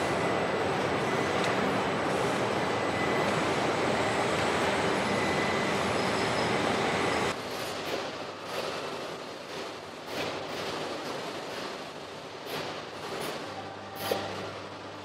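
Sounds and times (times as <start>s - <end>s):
faint high whine: 0.0s - 7.3s
assembly line machinery hiss and rumble: 0.0s - 15.0s.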